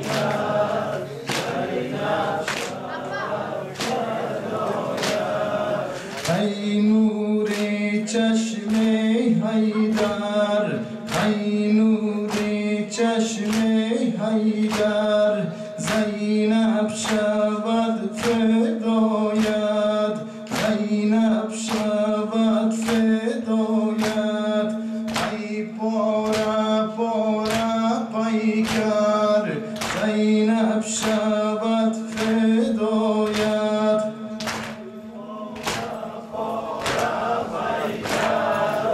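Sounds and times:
men singing a lament: 0.0s - 38.9s
hands slapping chests: 1.3s - 1.6s, 2.5s - 2.8s, 3.8s - 4.1s, 5.0s - 5.3s, 6.0s - 6.4s, 29.8s - 30.1s, 34.4s - 34.8s, 35.6s - 36.0s, 36.8s - 37.2s.

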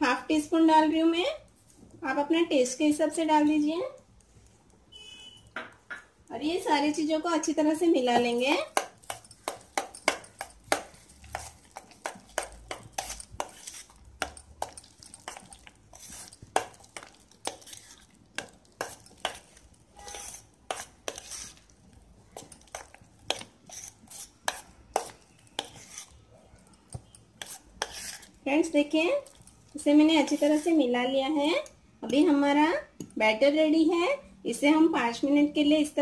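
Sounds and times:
spoon clinking against steel bowl: 8.2s - 21.5s, 22.4s - 26.1s.

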